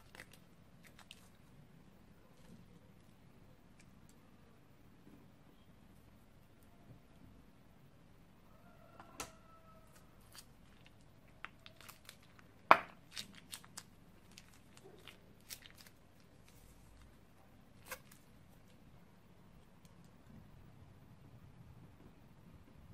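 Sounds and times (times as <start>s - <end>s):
plastic bag crinkling: 0.0s - 1.4s, 10.2s - 17.2s.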